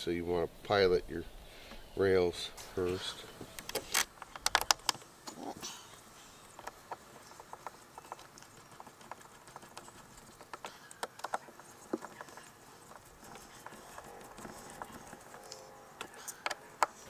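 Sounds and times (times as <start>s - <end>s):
clicks and taps of hand work: 6.6s - 15.1s.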